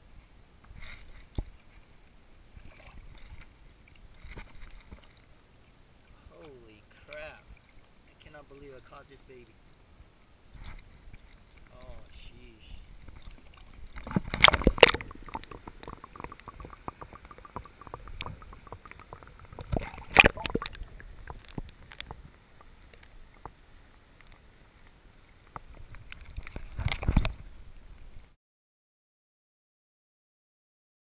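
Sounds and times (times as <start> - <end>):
muffled underwater splashing: 10.5 - 23.8
crackling bubbles: 12.4 - 28.1.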